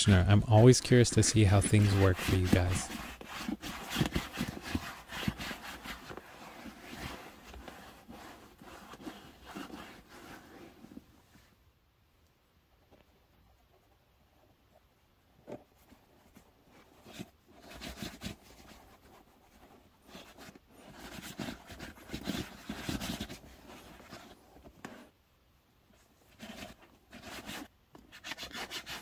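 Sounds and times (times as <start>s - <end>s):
fingers rubbing leather: 0.6s - 11.0s, 16.8s - 25.1s, 26.3s - 29.0s.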